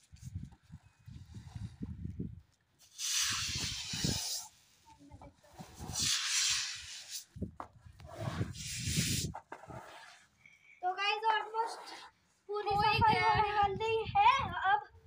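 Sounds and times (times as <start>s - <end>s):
squeegee swishing water on tiles: 2.8s - 12.2s.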